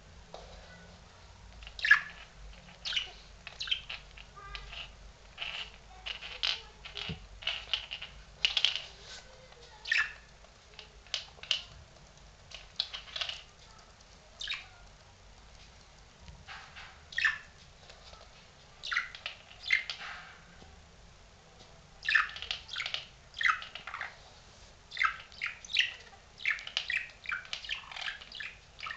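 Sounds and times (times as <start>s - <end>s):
budgerigar chirping: 1.7s - 4.0s, 17.1s - 17.6s, 18.8s - 20.1s, 22.0s - 24.2s, 24.9s - 28.9s.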